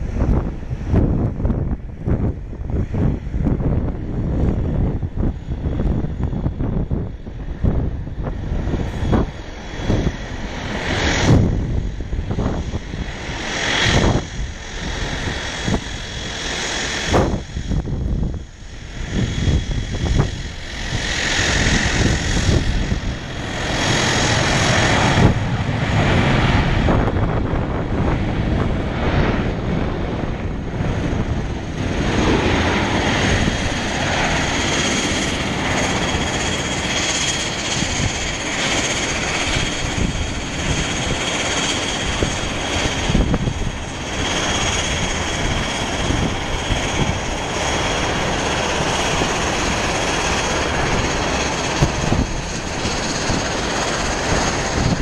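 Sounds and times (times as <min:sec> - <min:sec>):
jet engines rushing: 0:00.0 - 0:55.0.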